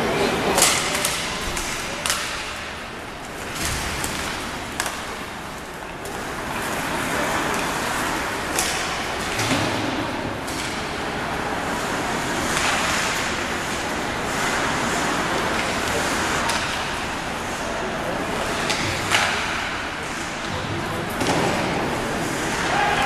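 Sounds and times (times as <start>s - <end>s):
hockey stick clacking on puck: 0.5s - 2.7s, 3.4s - 5.3s, 7.5s - 11.0s, 11.8s - 17.6s, 18.4s - 23.0s.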